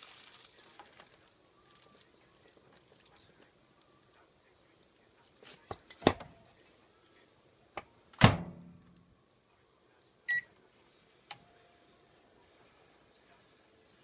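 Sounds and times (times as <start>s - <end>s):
microwave door shutting: 8.2s - 8.7s.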